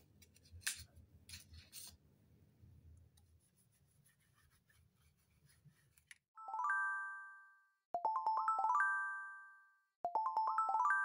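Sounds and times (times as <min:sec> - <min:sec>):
rustling and rubbing of wipe: 0:03.3 - 0:06.2.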